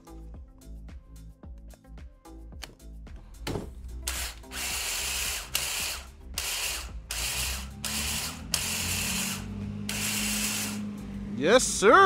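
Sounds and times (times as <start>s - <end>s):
power edger spinning in bursts: 4.0s - 11.0s.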